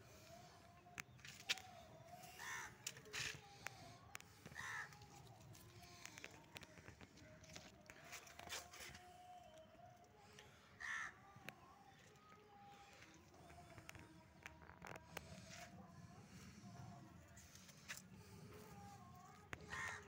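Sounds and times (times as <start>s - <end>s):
faint crow calls: 1.6s - 3.5s, 4.2s - 6.0s, 10.3s - 12.5s, 18.7s - 20.0s.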